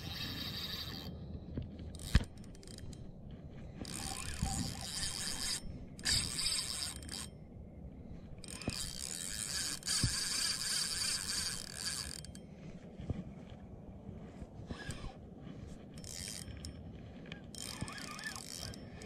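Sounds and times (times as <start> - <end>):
fishing reel gears whirring: 0.0 - 1.2, 1.9 - 3.1, 3.8 - 7.4, 8.3 - 12.4, 14.7 - 15.2, 15.9 - 19.0.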